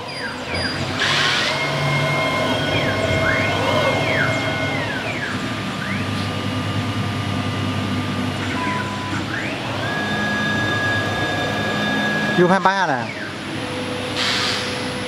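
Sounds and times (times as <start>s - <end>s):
drive motors whining: 0.0s - 15.0s
steady machine hum: 0.0s - 15.0s
higher steady tone: 1.4s - 7.9s.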